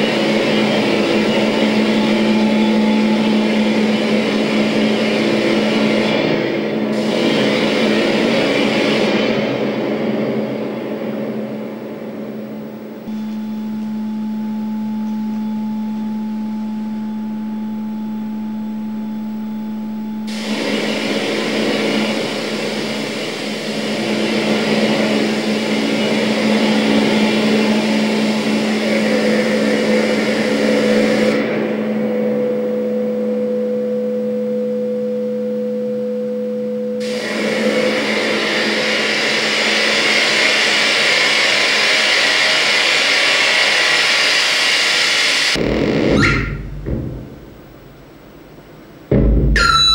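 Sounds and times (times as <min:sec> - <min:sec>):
low hum: 0:00.0 - 0:40.0, 0:45.5 - 0:49.9
electronic hiss: 0:11.3 - 0:32.9
thin held tone: 0:13.0 - 0:23.7, 0:30.7 - 0:37.2, 0:49.5 - 0:49.9.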